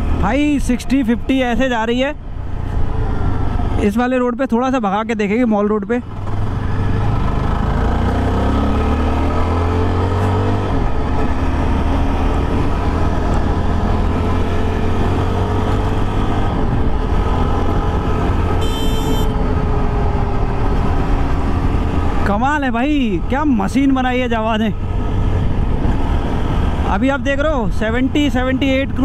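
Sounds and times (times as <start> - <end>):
motorcycle engine accelerating: 6.0 - 23.4.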